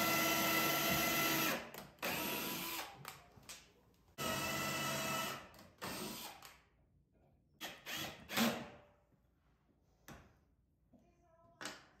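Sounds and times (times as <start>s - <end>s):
drill driving screws: 0.0s - 3.0s, 4.2s - 6.6s, 7.6s - 8.7s.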